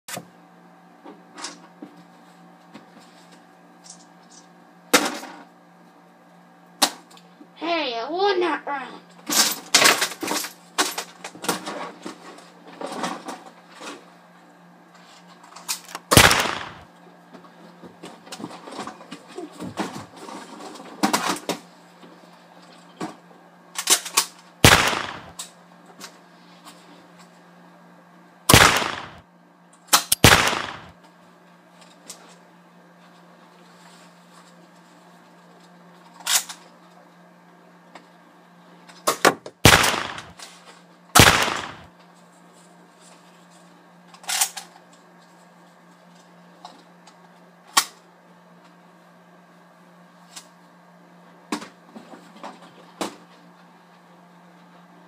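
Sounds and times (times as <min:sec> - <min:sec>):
gunshots with echo: 0:16.1 - 0:16.8, 0:24.6 - 0:25.3, 0:28.5 - 0:29.2, 0:30.1 - 0:30.9, 0:39.7 - 0:40.4, 0:41.2 - 0:41.9.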